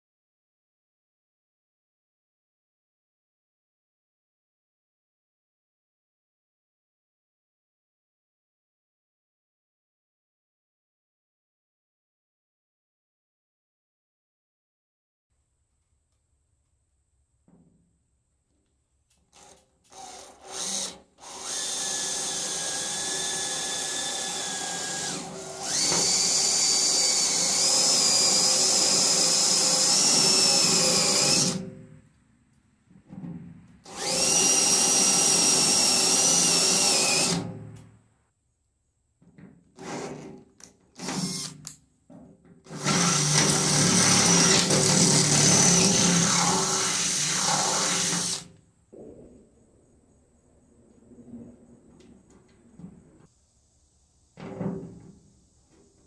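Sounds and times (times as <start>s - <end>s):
cordless drill whining: 19.3s - 31.7s, 33.9s - 37.6s, 39.8s - 41.8s, 42.7s - 48.5s.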